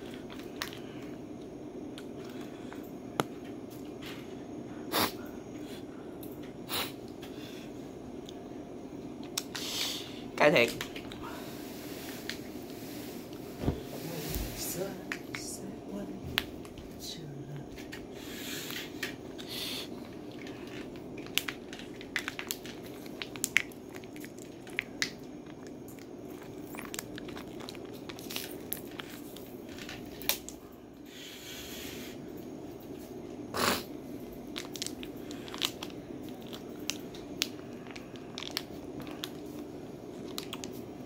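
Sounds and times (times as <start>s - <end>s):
snack packets crinkling: 0.0s - 1.2s, 18.7s - 30.6s, 34.2s - 41.0s.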